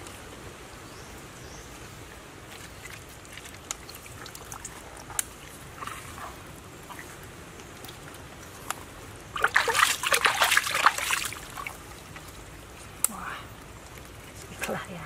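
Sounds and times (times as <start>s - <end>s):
water trickling and dripping: 2.1s - 15.0s
wet clicks and small splashes: 2.5s - 6.2s, 6.9s - 12.4s.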